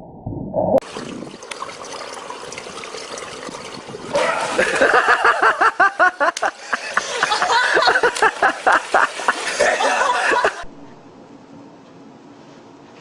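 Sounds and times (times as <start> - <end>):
person laughing hard: 4.2 - 10.7.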